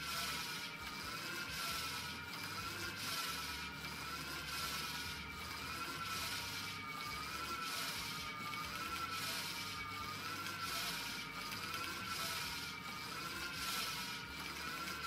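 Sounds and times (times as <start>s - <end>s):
flywheel generator whirring: 0.0s - 15.0s.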